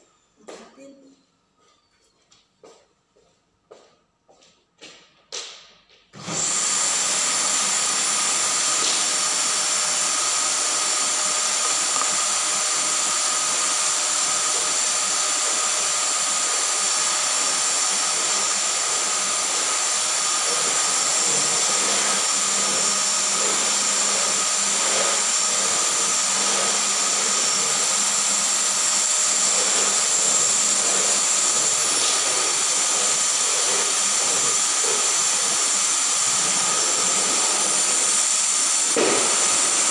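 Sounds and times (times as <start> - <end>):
vacuum cleaner running: 6.2 - 39.9.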